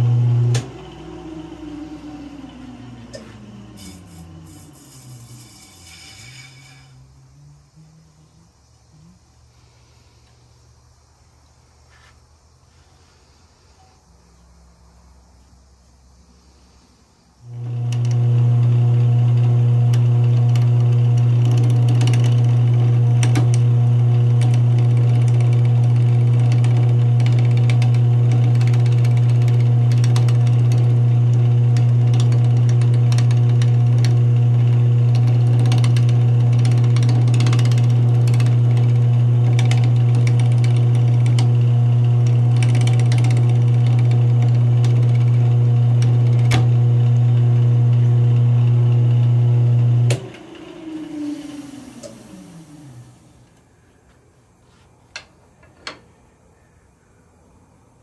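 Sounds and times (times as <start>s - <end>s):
lathe motor humming: 0.0s - 7.2s, 17.4s - 53.6s
tool scraping spinning wood: 3.0s - 7.2s.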